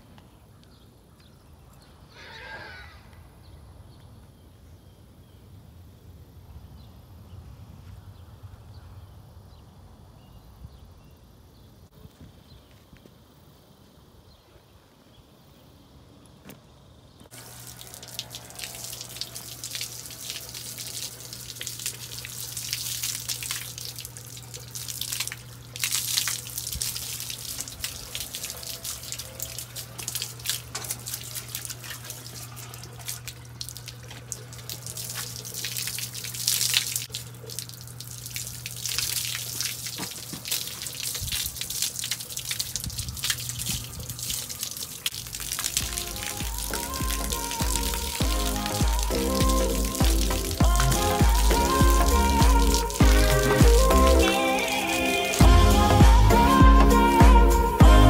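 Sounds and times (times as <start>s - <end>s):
faint outdoor sound: 0.0s - 58.0s
steady low hum: 15.2s - 58.0s
hose water spraying on horse: 17.3s - 56.3s.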